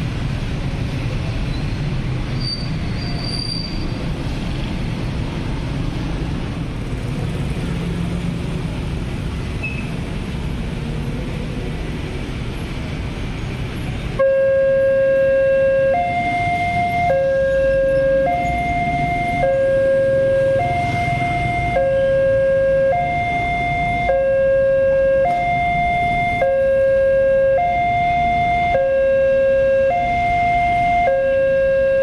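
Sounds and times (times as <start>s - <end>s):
road traffic rumble: 0.0s - 32.0s
motorcycles: 3.8s - 14.2s, 15.2s - 32.0s
level crossing alarm tone: 14.2s - 32.0s.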